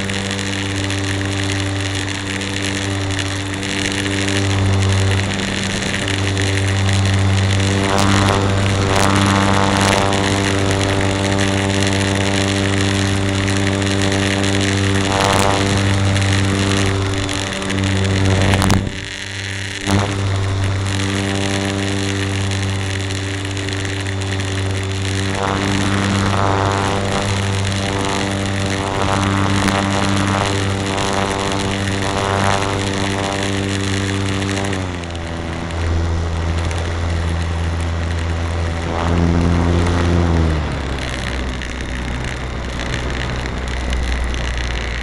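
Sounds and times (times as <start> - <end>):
wind rush: 0.0 - 19.2
model plane electric motor buzzing: 0.0 - 45.0.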